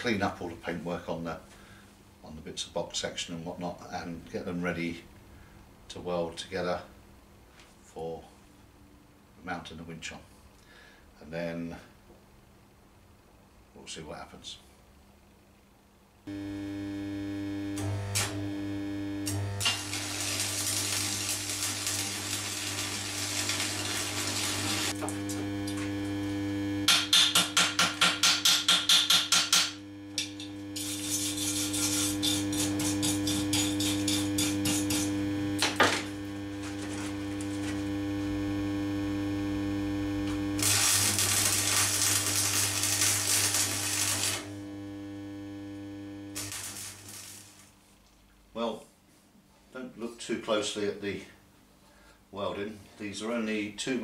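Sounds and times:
electrical hum: 16.2s - 48.5s
welding arc crackling and hissing: 16.3s - 47.8s
sharp welding pops: 17.6s - 18.6s, 19.2s - 37.9s, 40.2s - 47.8s.

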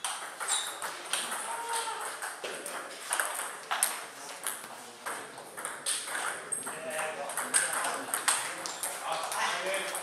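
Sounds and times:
table tennis balls clicking: 0.0s - 10.0s.

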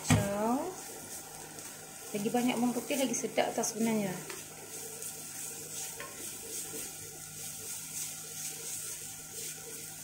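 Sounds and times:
garlic sizzling in oil: 0.0s - 10.0s
spatula scraping a pan: 4.2s - 10.0s.

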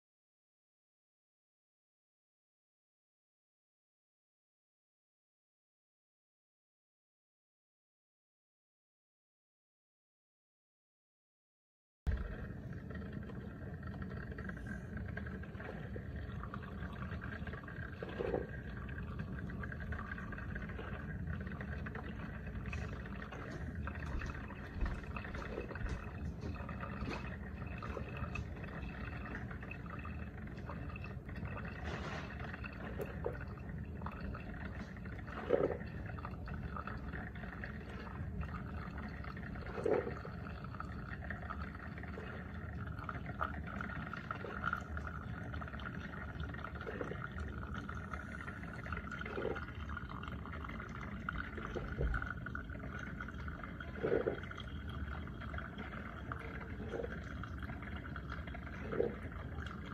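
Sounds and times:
coffee maker humming: 12.1s - 59.9s
coffee pouring over ice: 12.1s - 59.9s.

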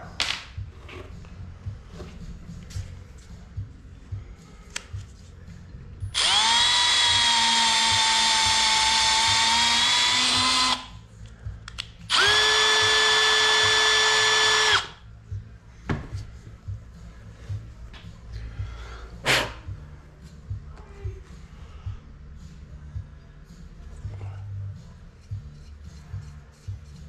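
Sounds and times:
cordless drill running under load: 6.2s - 10.9s, 12.1s - 14.9s.

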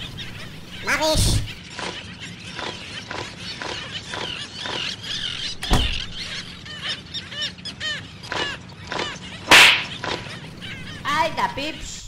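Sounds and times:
honking bird calls: 0.0s - 12.0s
sharp knock: 9.5s - 9.9s.

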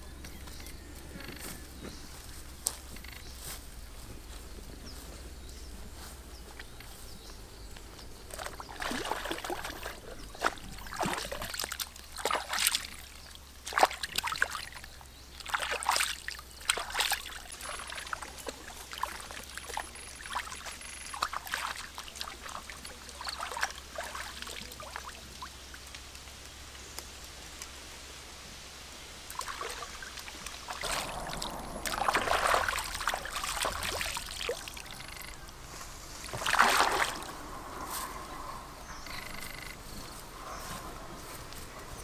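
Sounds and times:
water splashing and sloshing: 8.2s - 26.0s, 29.2s - 38.1s.

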